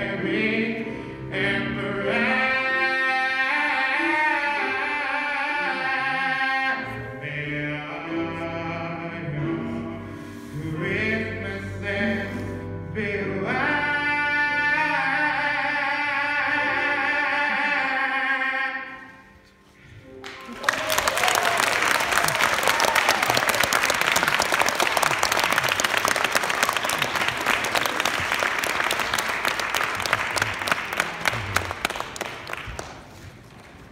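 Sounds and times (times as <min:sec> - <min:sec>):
man singing: 0:00.0 - 0:19.4
audience applause: 0:20.2 - 0:33.9.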